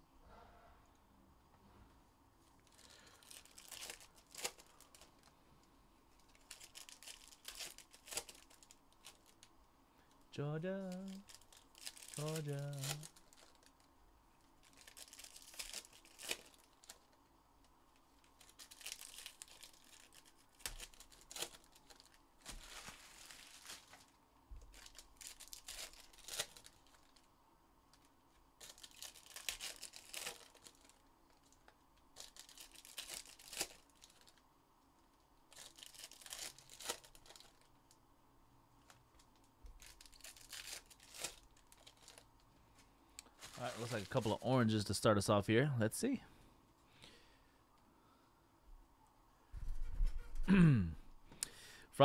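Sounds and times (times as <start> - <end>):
plastic wrapping tearing and crinkling: 2.6 - 5.3, 6.2 - 9.5, 10.7 - 17.2, 17.9 - 27.3, 27.9 - 34.4, 35.5 - 37.9, 38.8 - 42.4, 43.2 - 44.4.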